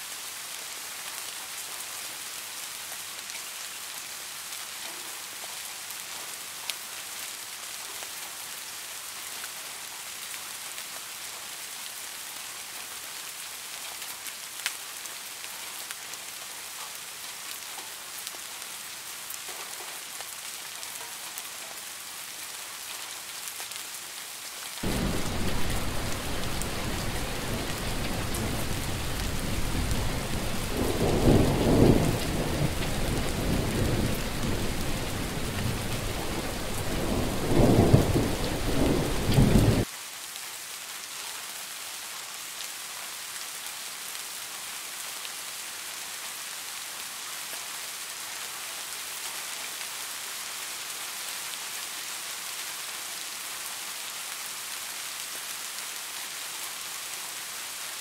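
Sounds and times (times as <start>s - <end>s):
heavy rain: 0.0s - 58.0s
steady rain falling: 0.0s - 58.0s
rolling thunder: 24.8s - 39.8s.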